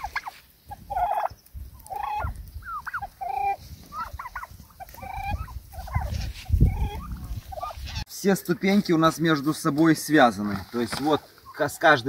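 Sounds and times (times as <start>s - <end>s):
turkeys calling: 0.0s - 8.1s, 10.9s - 12.0s.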